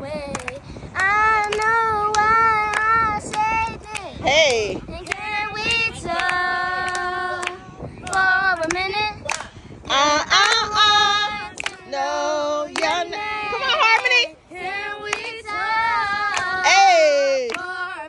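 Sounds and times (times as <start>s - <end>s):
child singing unaccompanied: 0.0s - 18.0s.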